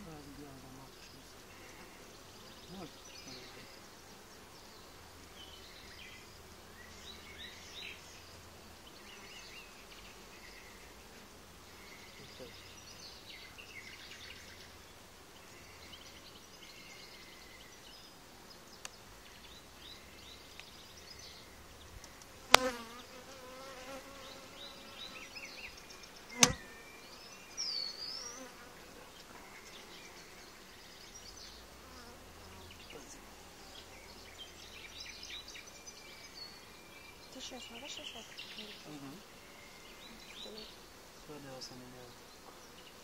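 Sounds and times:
honeybees buzzing: 0.0s - 43.0s
sharp knocks: 26.4s - 26.6s.

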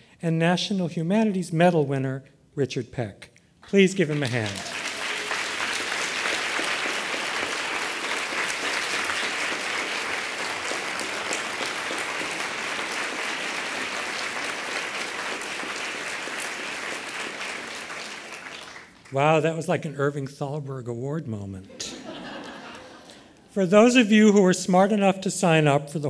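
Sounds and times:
audience applause: 4.0s - 19.2s.

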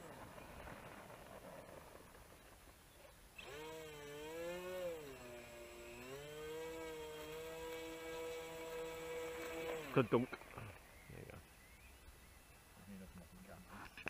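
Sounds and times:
model plane electric motor: 3.4s - 10.3s.

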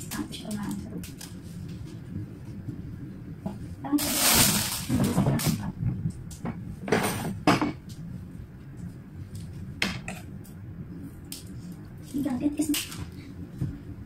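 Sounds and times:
rustling of stems and cellophane: 4.0s - 5.7s.

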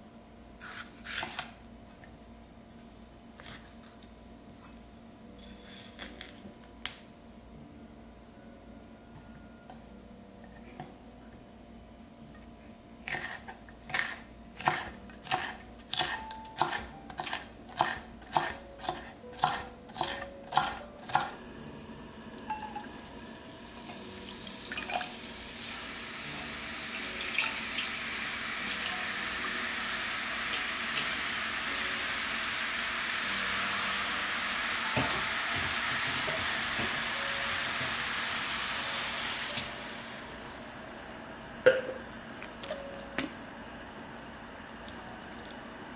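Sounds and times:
knife chopping on wooden board: 13.1s - 21.3s
noodles sizzling in wok: 21.3s - 41.2s.

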